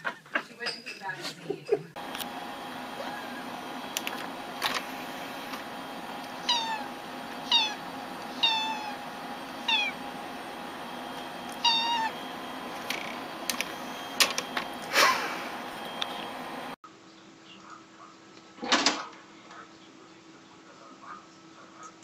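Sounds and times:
cat pawing brushing sound: 3.0s - 12.8s
cat meowing: 6.4s - 9.0s, 9.6s - 10.0s, 11.6s - 12.2s.

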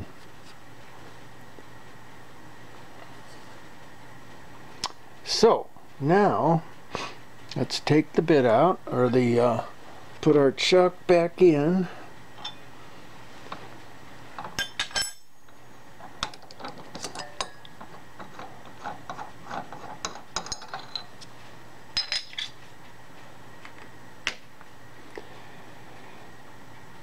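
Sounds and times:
metal tooling clinking: 12.4s - 12.6s, 14.4s - 15.6s, 16.2s - 21.2s.

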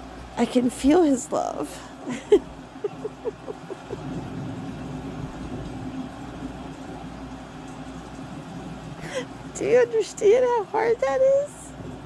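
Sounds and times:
woman crying: 2.0s - 4.0s, 9.0s - 9.3s.

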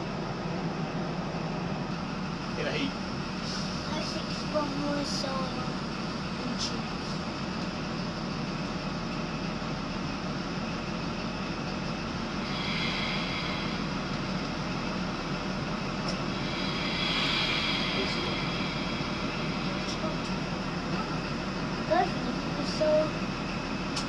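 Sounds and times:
diesel train engine running: 0.0s - 24.0s
high hiss: 12.4s - 15.2s, 16.1s - 21.8s.

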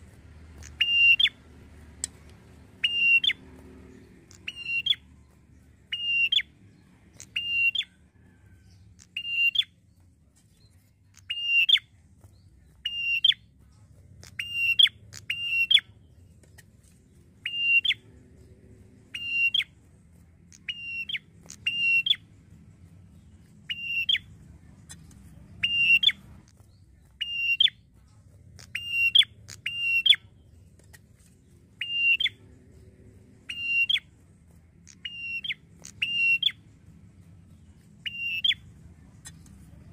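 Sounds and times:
bird whistled calls: 0.6s - 1.4s, 2.8s - 3.4s, 4.3s - 5.1s, 5.9s - 6.5s, 7.2s - 9.7s, 11.2s - 11.9s, 12.8s - 13.4s, 14.2s - 15.9s, 17.4s - 18.0s, 19.1s - 19.7s, 20.5s - 22.2s, 23.7s - 24.3s, 25.6s - 26.2s, 27.2s - 27.8s, 28.6s - 30.3s, 31.8s - 32.4s, 33.5s - 34.1s, 34.9s - 36.6s, 38.0s - 39.5s.

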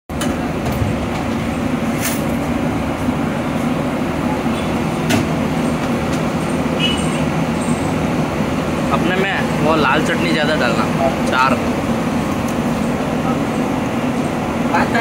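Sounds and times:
busy food stall din: 0.1s - 15.0s.

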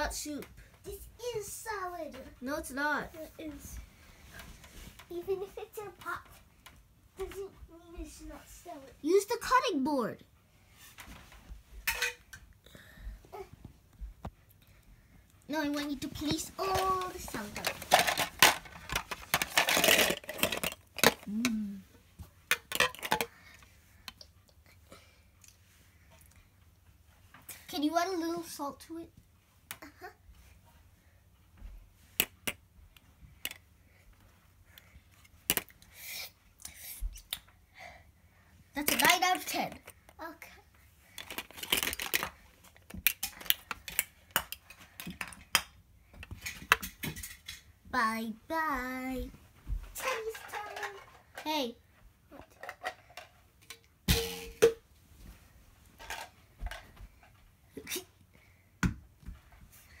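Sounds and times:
plastic toy kitchenware clattering: 16.2s - 21.3s, 22.5s - 23.3s, 38.8s - 39.8s, 41.2s - 42.4s, 50.0s - 51.7s, 52.4s - 54.8s, 56.0s - 56.8s
plastic toy pieces clacking: 16.7s - 21.3s, 22.5s - 23.4s, 41.2s - 45.7s, 50.0s - 51.5s.

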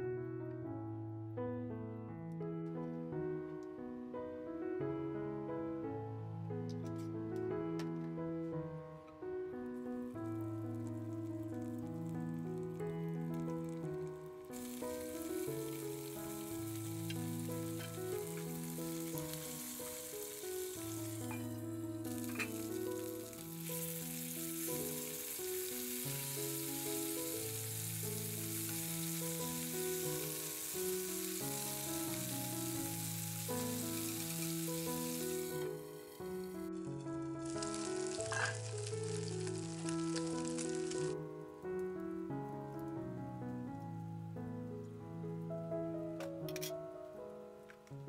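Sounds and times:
slow background music: 0.0s - 48.0s
fish sizzling in frying oil: 10.1s - 41.2s.

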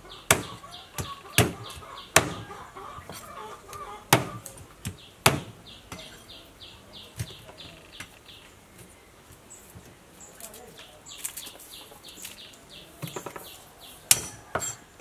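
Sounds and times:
chickens clucking: 0.0s - 9.0s, 10.8s - 15.0s
bird chirping: 0.0s - 14.8s
cleaver chopping on wooden block: 0.3s - 2.5s, 4.1s - 6.1s.

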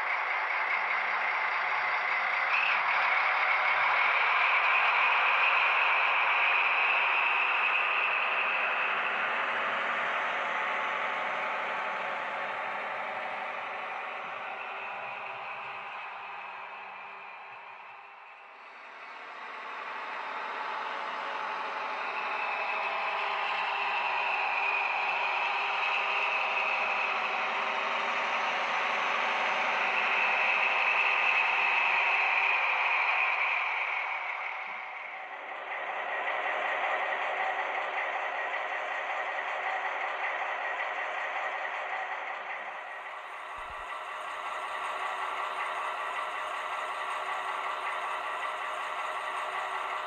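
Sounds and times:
model train running on track: 0.0s - 50.0s
model train rolling over track: 29.8s - 50.0s.

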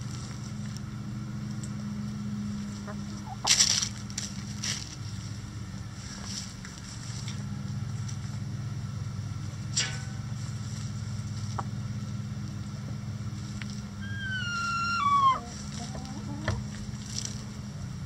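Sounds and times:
steady low hum: 0.0s - 18.0s
chicken call: 14.0s - 16.7s.

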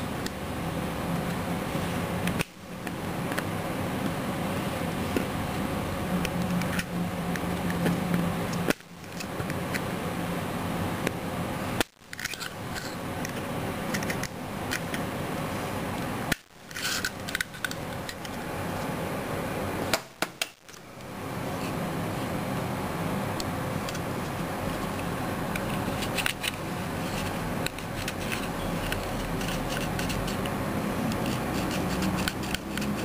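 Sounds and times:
steady background hiss: 0.0s - 33.0s
metal pick clicking and scraping: 12.1s - 15.0s, 25.5s - 30.5s, 31.1s - 33.0s.

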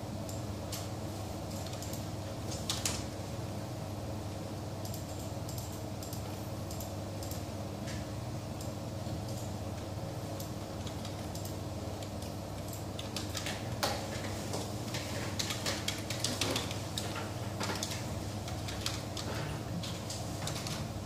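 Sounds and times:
room hum: 0.0s - 21.0s
keyboard typing clicks: 1.5s - 3.1s, 4.8s - 7.5s, 10.4s - 14.0s, 15.4s - 20.8s.

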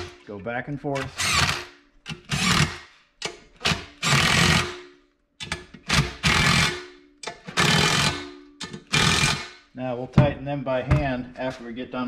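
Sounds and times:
impact wrench bursts: 1.0s - 9.7s.

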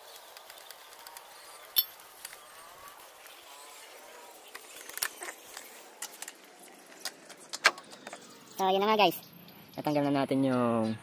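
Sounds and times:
metal tool clinking on bolt: 1.8s - 2.0s.

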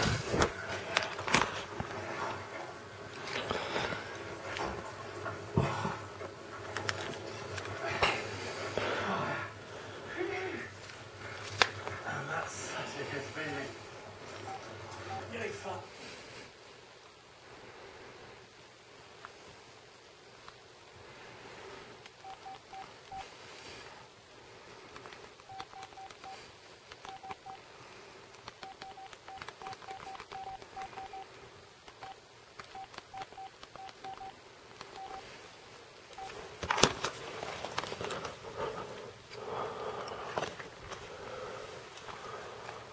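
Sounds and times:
rustling and clattering: 0.0s - 5.5s, 36.3s - 39.2s
short electronic beeps: 28.6s - 31.2s, 35.0s - 35.2s.

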